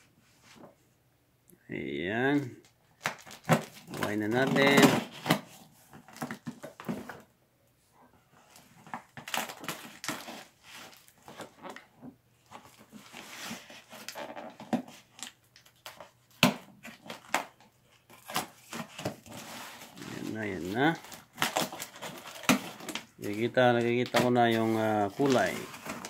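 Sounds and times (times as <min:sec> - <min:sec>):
cardboard tearing and scraping: 0:03.0 - 0:07.2, 0:08.9 - 0:11.8, 0:12.5 - 0:15.2, 0:18.1 - 0:26.0.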